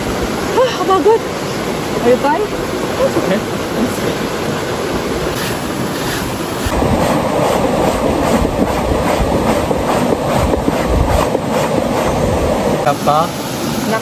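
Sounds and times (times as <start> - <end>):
river water rushing: 0.0 - 8.0, 12.0 - 14.0.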